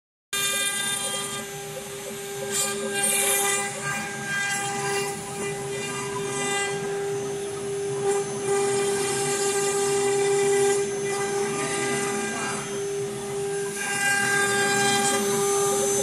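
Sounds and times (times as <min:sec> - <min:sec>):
spindle motor high whine: 0:00.4 - 0:16.0.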